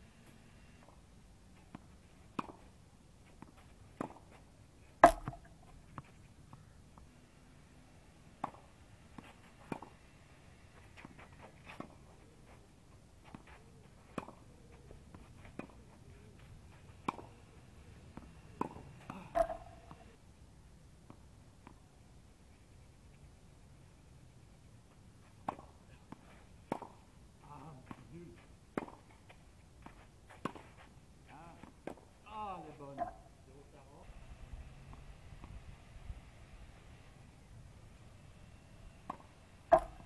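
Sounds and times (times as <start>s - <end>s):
racket striking tennis ball: 3.4s - 4.4s, 5.0s - 6.1s, 8.4s - 10.0s, 13.3s - 14.4s, 17.0s - 17.4s, 18.2s - 20.1s, 26.7s - 27.0s, 28.7s - 29.1s, 39.0s - 40.0s.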